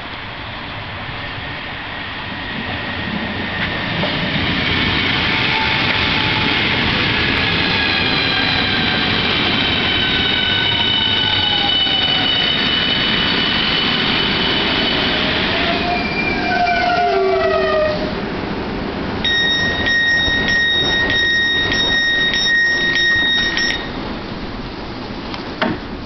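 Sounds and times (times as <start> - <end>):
two-tone door alarm beeps: 19.2 - 24.0.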